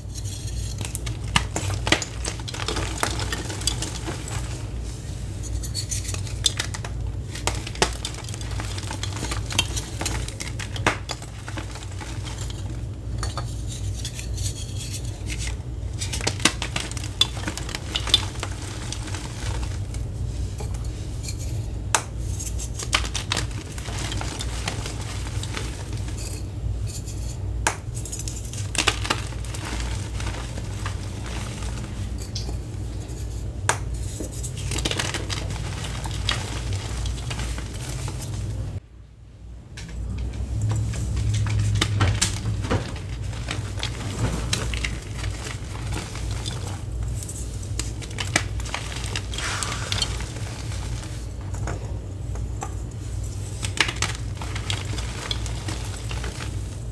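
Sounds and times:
chalk crushed in hands: 0:41.5 - 0:51.4.

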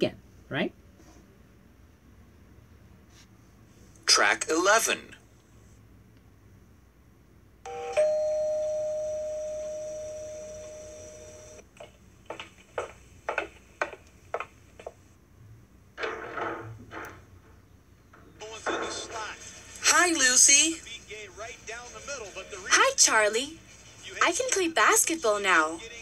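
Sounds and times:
two-note doorbell chime: 0:07.7 - 0:11.6.

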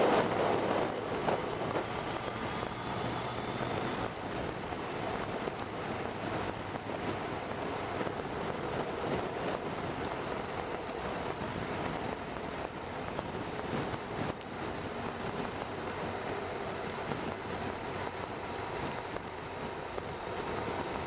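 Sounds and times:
wind rushing: 0:00.0 - 0:16.2.

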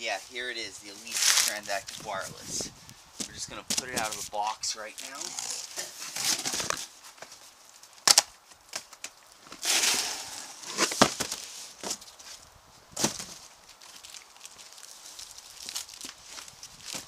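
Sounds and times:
cardboard boxes scraping: 0:05.0 - 0:06.9, 0:09.6 - 0:12.3.

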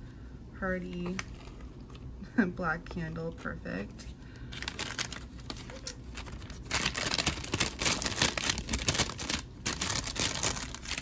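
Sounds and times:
paper packing rustling: 0:03.4 - 0:11.0.

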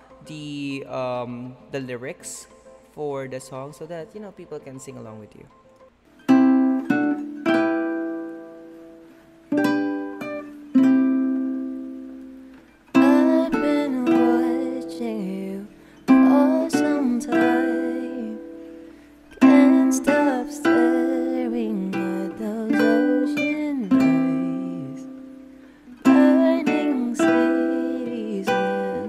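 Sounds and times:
acoustic plucked-string chords: 0:00.0 - 0:29.0
man singing: 0:13.0 - 0:18.4, 0:19.4 - 0:25.1, 0:26.0 - 0:29.0.

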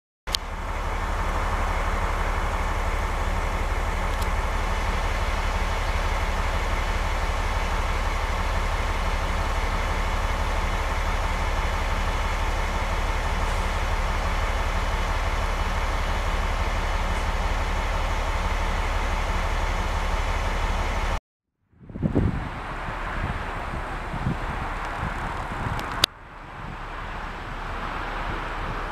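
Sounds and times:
diesel locomotive idling: 0:00.3 - 0:21.2, 0:21.8 - 0:28.9.

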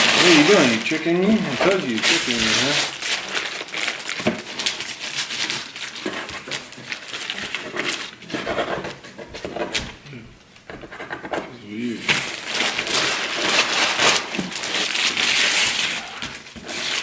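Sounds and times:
tissue paper rustling: 0:00.0 - 0:08.4, 0:11.9 - 0:17.0.

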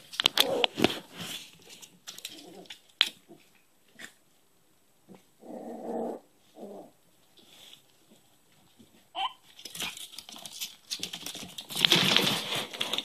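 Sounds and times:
puppy calling: 0:09.2 - 0:09.5.

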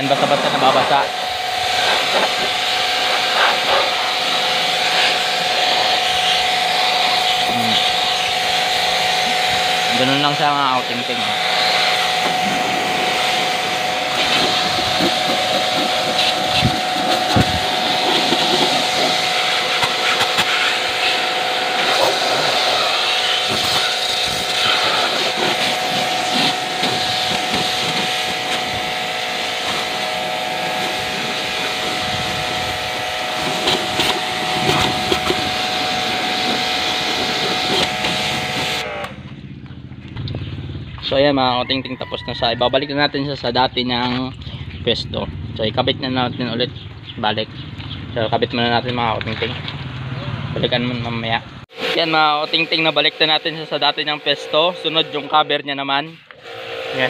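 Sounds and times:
water spray hissing: 0:00.0 - 0:39.1
pressure washer motor whine: 0:00.0 - 0:57.0.

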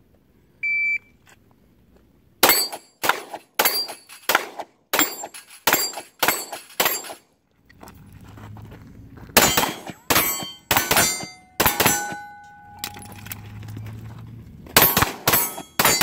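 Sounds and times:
steel plates ringing: 0:02.4 - 0:03.0, 0:03.6 - 0:04.3, 0:09.4 - 0:13.2, 0:14.8 - 0:16.0
handgun shots: 0:02.4 - 0:07.2, 0:09.4 - 0:13.0, 0:14.8 - 0:16.0.

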